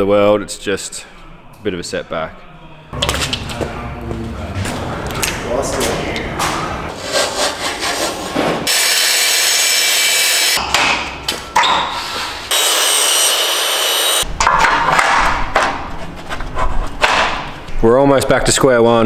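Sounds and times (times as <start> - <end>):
power tool cutting aluminium: 8.7 - 10.6, 12.5 - 14.2.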